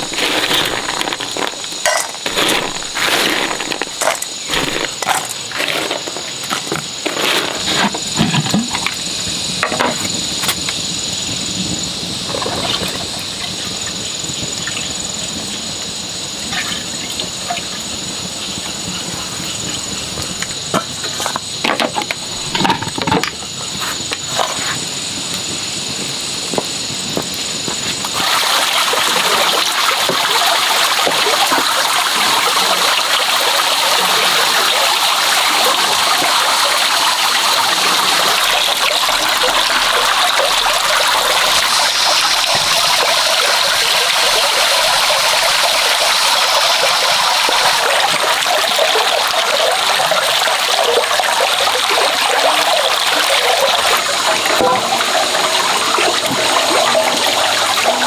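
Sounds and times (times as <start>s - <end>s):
water splashing into metal basin: 0.0s - 10.2s, 20.8s - 23.4s, 28.1s - 58.0s.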